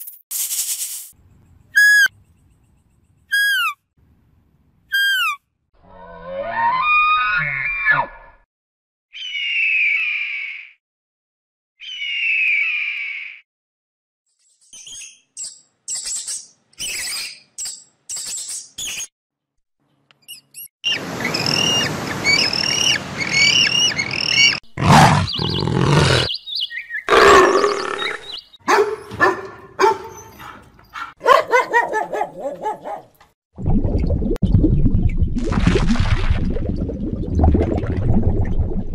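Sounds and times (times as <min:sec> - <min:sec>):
high-pitched animal squeaks: 0:01.8 - 0:02.1, 0:03.3 - 0:03.8, 0:04.9 - 0:05.4
animal chirping calls: 0:03.3 - 0:03.8, 0:04.9 - 0:05.4, 0:22.3 - 0:28.6
pitched animal calls: 0:24.4 - 0:26.3, 0:27.1 - 0:28.4
low growl: 0:24.8 - 0:26.3.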